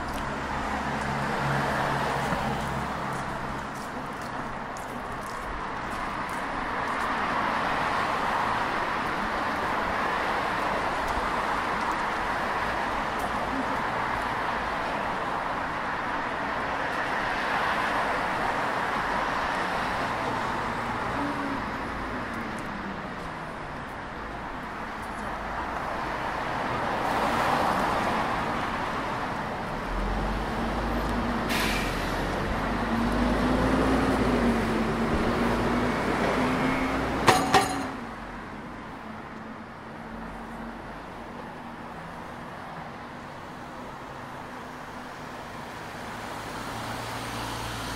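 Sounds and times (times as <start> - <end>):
road traffic noise: 0.0 - 47.9
sharp knocks: 37.2 - 38.0.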